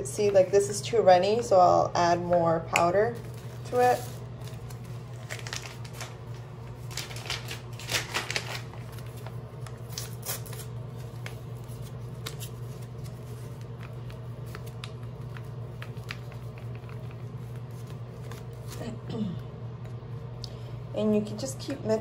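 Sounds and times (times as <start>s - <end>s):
steady low hum: 0.0s - 22.0s
foil packet crinkling: 3.2s - 18.9s.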